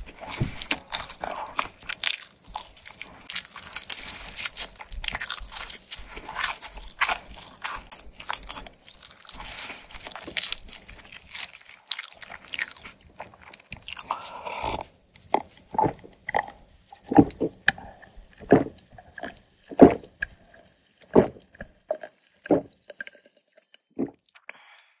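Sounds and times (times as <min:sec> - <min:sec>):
person gulping a drink: 0:13.8 - 0:23.2, 0:24.0 - 0:24.6.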